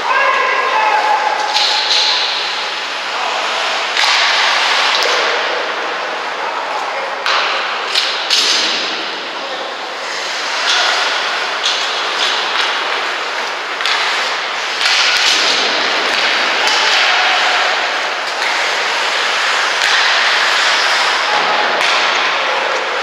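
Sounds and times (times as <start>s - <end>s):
hockey sticks and puck clacking: 0.0s - 23.0s
skate blades scraping ice: 1.4s - 6.3s, 9.9s - 23.0s.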